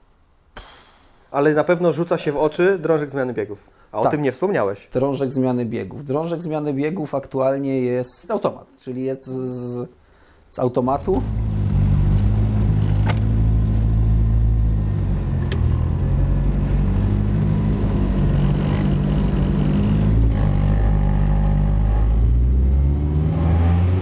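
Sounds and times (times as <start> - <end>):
car engine running at low revs: 11.2 - 24.0.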